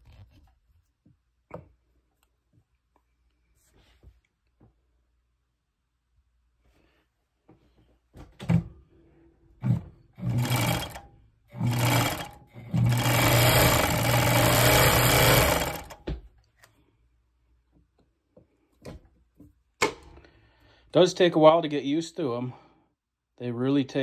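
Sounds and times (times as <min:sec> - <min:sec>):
sewing machine running: 0:09.6 - 0:16.0.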